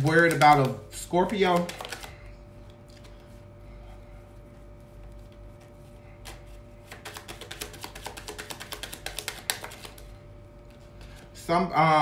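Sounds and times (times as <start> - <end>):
cards being shuffled: 0.0 - 3.3, 5.1 - 10.1.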